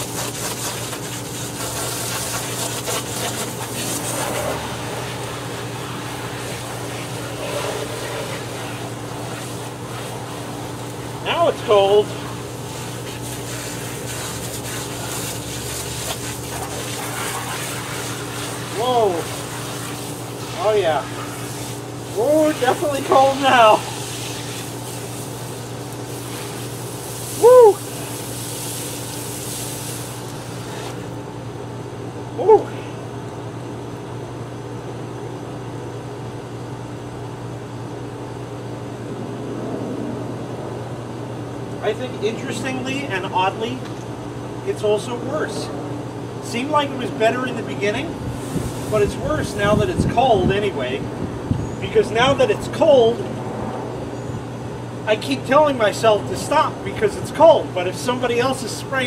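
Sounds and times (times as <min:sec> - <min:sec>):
garden hose spraying water: 0:00.0 - 0:31.2, 0:46.4 - 0:50.5
low mechanical hum: 0:00.0 - 0:59.0.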